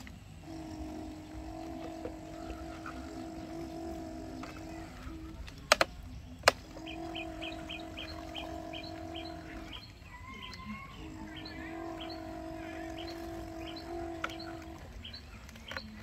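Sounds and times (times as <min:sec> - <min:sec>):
bird chirping: 0:00.0 - 0:16.0
toy excavator motors whining: 0:00.0 - 0:16.0
sharp plastic knocks: 0:05.5 - 0:06.6.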